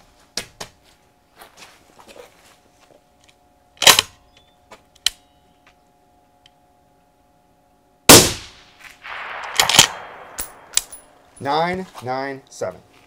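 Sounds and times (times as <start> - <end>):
suppressed rifle shots: 8.1 - 11.2.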